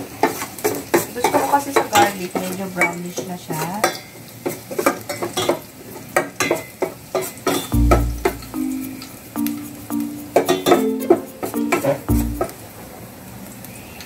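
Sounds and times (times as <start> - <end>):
garlic sizzling in oil: 0.0 - 10.7.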